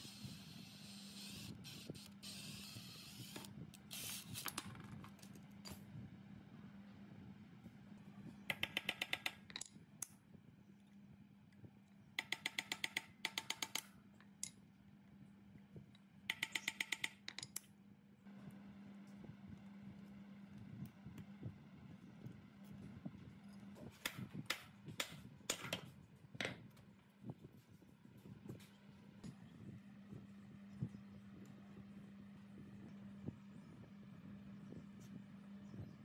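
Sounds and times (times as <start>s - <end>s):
hex key clicking on bolts: 8.5s - 10.1s, 12.2s - 14.6s, 16.3s - 17.7s
low steady hum: 17.3s - 36.0s.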